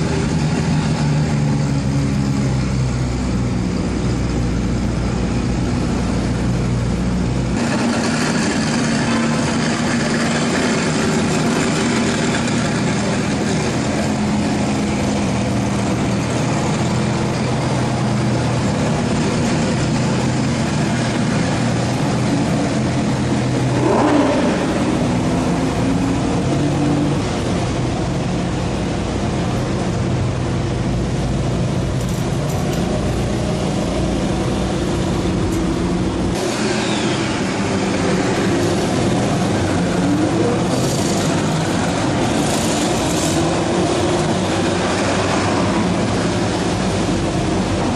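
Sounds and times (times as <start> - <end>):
car engines rumbling: 0.0 - 47.9.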